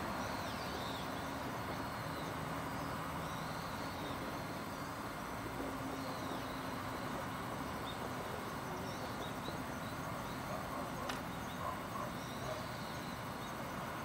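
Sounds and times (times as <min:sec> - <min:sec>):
faint bird chirps: 0:00.0 - 0:14.0
outdoor background noise: 0:00.0 - 0:14.0
sharp click: 0:11.0 - 0:11.3.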